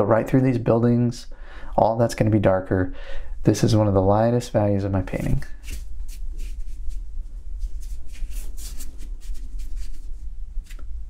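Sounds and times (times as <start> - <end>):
steady low hum: 0.0 - 11.0
brush sweeping over wet paper: 5.6 - 10.8.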